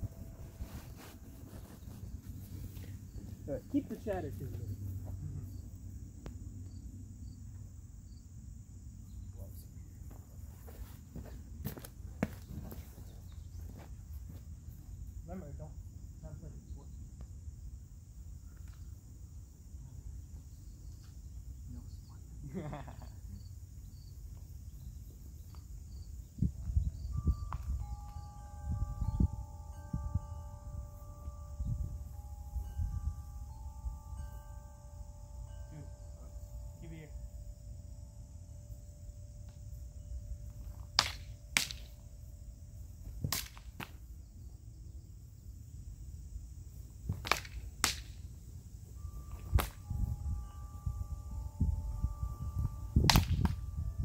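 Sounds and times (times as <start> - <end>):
insects chirping: 0.0 - 54.0
person speaking: 3.3 - 5.4
chime ringing: 27.1 - 40.6, 48.9 - 54.0.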